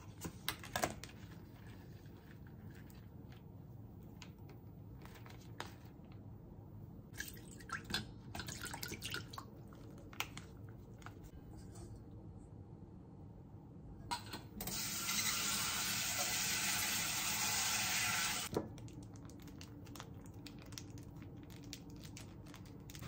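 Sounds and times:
running water hissing: 0:15.1 - 0:18.5
packet crinkling: 0:18.6 - 0:23.0.

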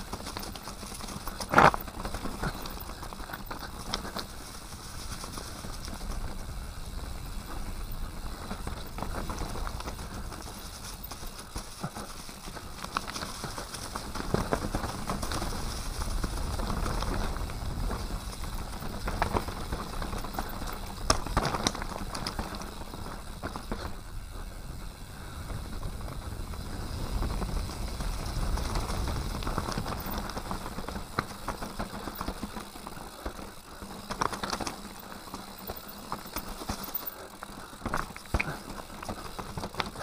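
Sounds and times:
bike rattling over rocks: 0:00.0 - 0:40.0
bike tyres rolling on dirt: 0:00.0 - 0:40.0
wind rumble on microphone: 0:13.4 - 0:31.4.

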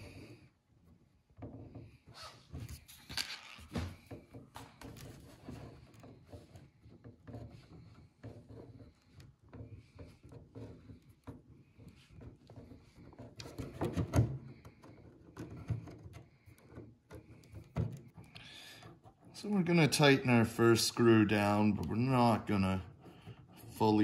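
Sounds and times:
knocking and rubbing: 0:00.0 - 0:24.0.

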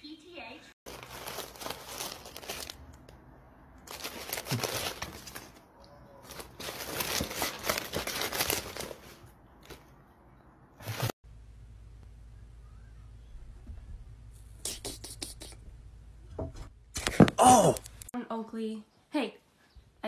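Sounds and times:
crinkling tea sachets and cardboard: 0:00.9 - 0:03.2, 0:03.8 - 0:05.6, 0:06.2 - 0:09.9.

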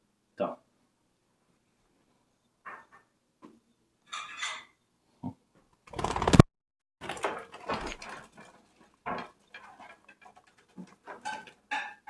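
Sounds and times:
budgie wings flapping: 0:05.9 - 0:06.5.

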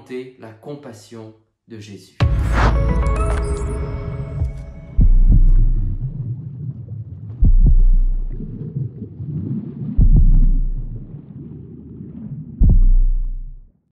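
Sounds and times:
deep bass hits: 0:02.2 - 0:06.6, 0:07.4 - 0:08.6, 0:10.0 - 0:11.2, 0:12.6 - 0:13.7.

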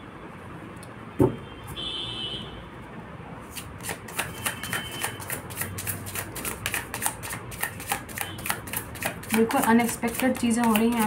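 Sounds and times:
cards being shuffled: 0:03.5 - 0:09.4.

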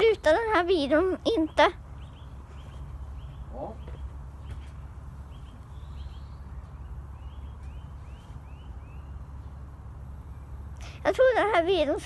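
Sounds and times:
steady low rumble: 0:00.0 - 0:12.0
bird chirping: 0:00.9 - 0:10.9.

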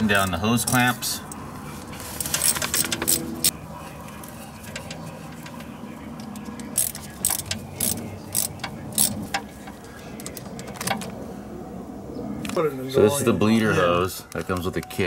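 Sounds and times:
screwdriver turning hose clamp screw: 0:06.3 - 0:09.4.

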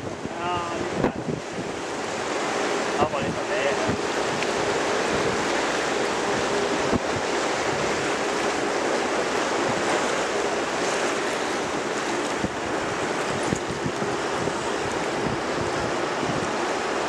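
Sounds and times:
water rushing past boat: 0:00.0 - 0:17.0
wind on microphone: 0:00.0 - 0:17.0.

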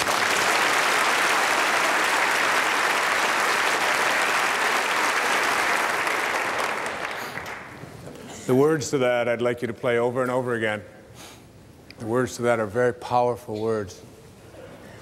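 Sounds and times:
audience applauding: 0:00.0 - 0:07.8.

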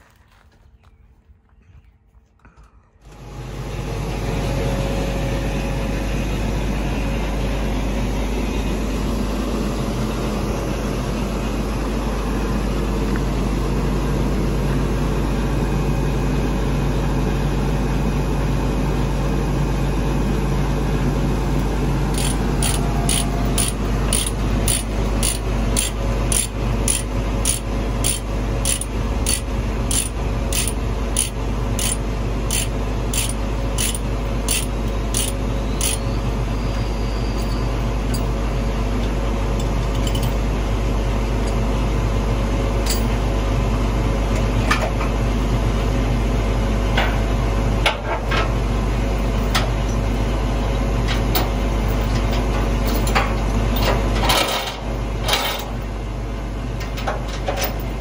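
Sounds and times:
steady low hum: 0:00.0 - 0:58.0
ratchet clicking: 0:22.1 - 0:36.0.

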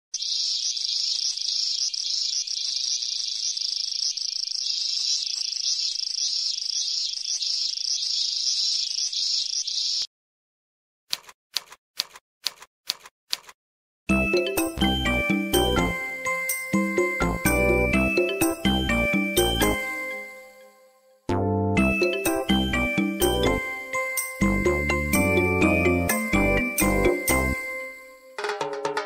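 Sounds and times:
cicadas buzzing: 0:00.2 - 0:10.0.

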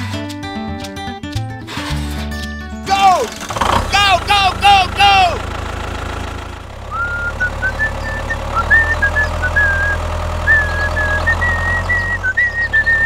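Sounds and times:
toy tractor engine chugging: 0:02.9 - 0:13.0.

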